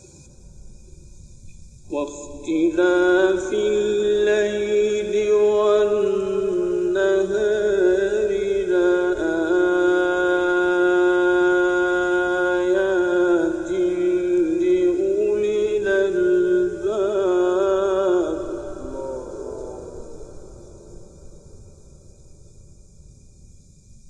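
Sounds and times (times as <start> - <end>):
man chanting recitation: 1.9 - 20.9.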